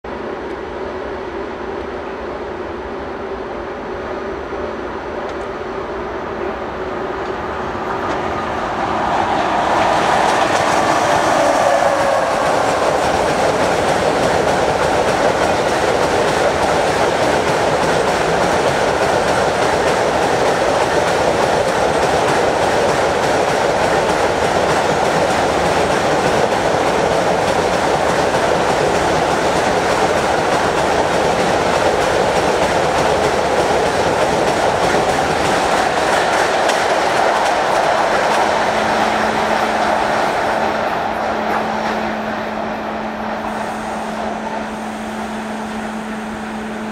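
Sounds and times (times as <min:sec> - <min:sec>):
falling locomotive tone: 0:00.1 - 0:46.9
wheels clacking on rails: 0:07.2 - 0:43.8.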